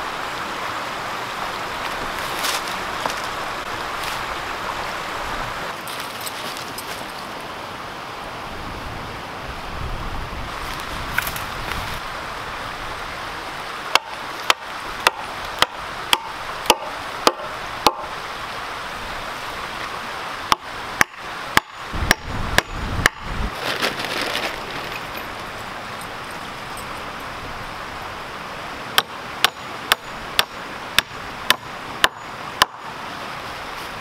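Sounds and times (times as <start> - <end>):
creek flowing: 0.0 - 34.0
hatchet chopping wood: 13.9 - 18.1, 20.5 - 23.3, 29.0 - 32.9.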